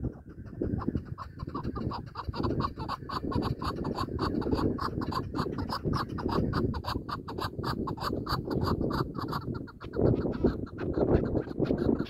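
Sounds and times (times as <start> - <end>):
partridge clucking calls: 0.0 - 12.0.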